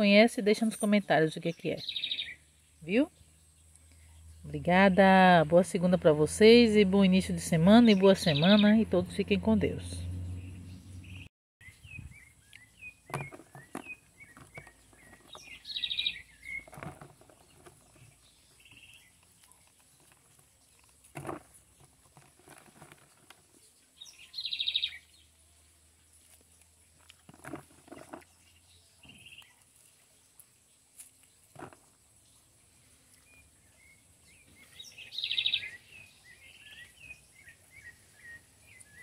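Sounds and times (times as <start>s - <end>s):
birds chirping: 0.0s - 39.0s
bird trills: 15.3s - 16.7s, 34.6s - 39.0s.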